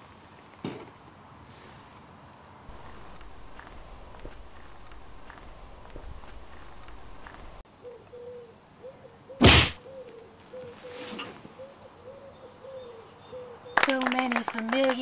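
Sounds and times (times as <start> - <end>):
sharp swish: 9.4 - 9.8.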